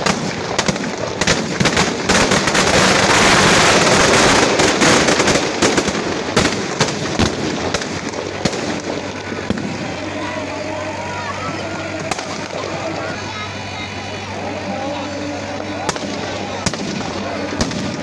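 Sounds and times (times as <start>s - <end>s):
firecrackers banging and crackling: 0.0s - 18.0s.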